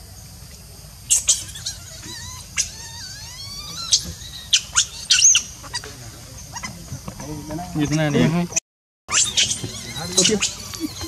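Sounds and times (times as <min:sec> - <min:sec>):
baby monkey high squeals: 0:01.1 - 0:05.9, 0:09.1 - 0:11.0
baby monkey whimpering call: 0:01.1 - 0:05.9, 0:09.1 - 0:11.0.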